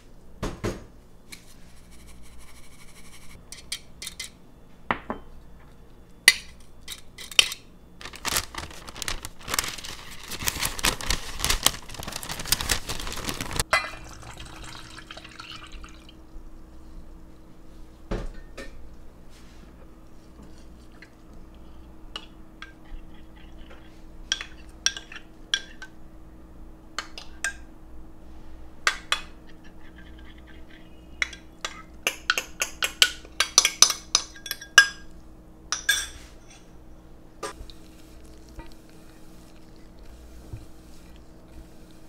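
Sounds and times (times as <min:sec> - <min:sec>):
metal spoon clinking against bowls: 0:29.9 - 0:35.1, 0:35.7 - 0:36.7.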